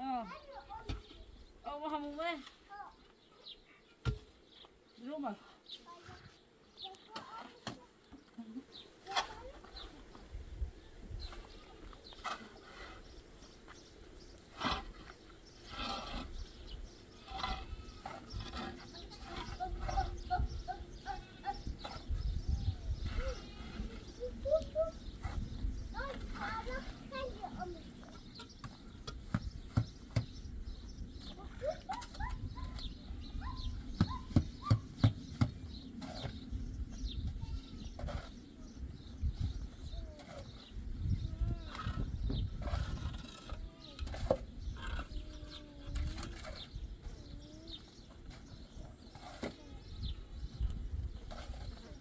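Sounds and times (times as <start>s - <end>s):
small birds chirping: 0.0s - 52.0s
animal calls: 31.6s - 35.0s, 44.7s - 45.7s.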